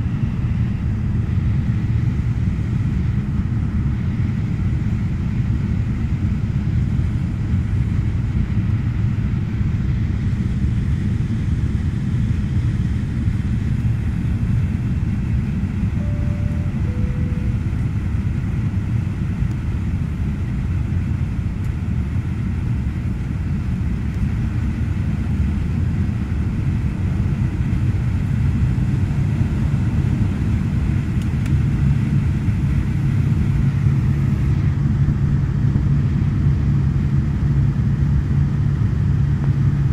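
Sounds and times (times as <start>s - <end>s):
turboprop cabin drone: 0.0s - 39.9s
two-note cabin chime: 16.0s - 17.9s.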